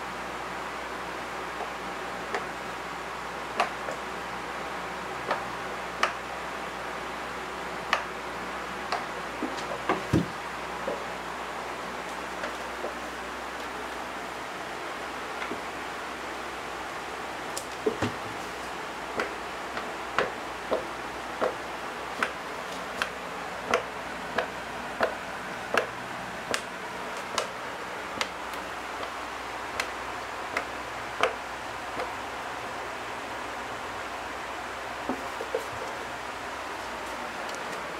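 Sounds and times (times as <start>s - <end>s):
cat tail thumping on wooden floor: 9.9s - 10.4s.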